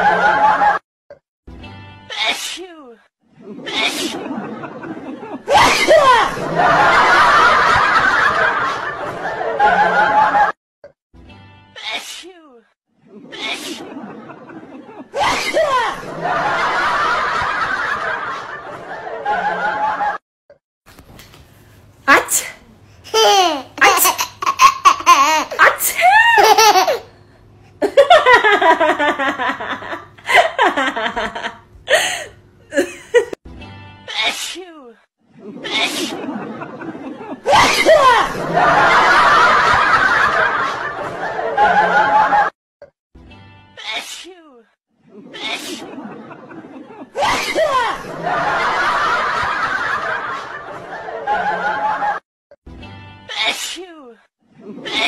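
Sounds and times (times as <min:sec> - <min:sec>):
people laughing: 0:00.0 - 0:00.8, 0:03.4 - 0:10.6, 0:13.0 - 0:20.2, 0:27.8 - 0:33.4, 0:35.4 - 0:42.5, 0:45.0 - 0:52.2
young child laughing: 0:23.1 - 0:27.1.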